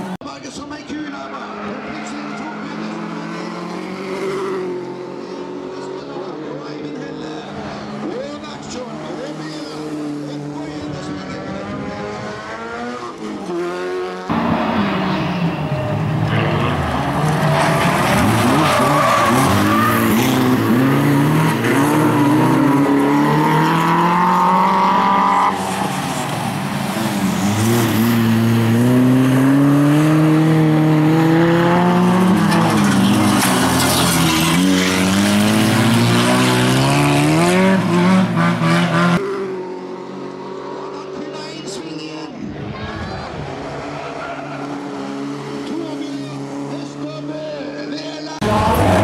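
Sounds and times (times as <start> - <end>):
car engines revving: 0.0 - 49.0
tyres skidding on gravel: 15.7 - 30.2, 31.9 - 38.4.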